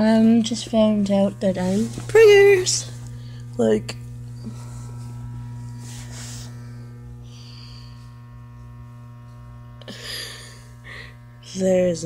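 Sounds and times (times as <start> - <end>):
soft hissing rustles: 0.0 - 8.7
electrical mains hum: 0.0 - 12.0.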